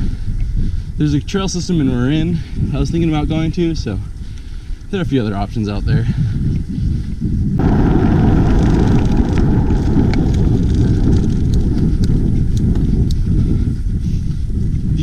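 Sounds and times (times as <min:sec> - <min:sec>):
wind buffeting microphone: 0:00.0 - 0:15.0
faint ticks: 0:04.3 - 0:04.9.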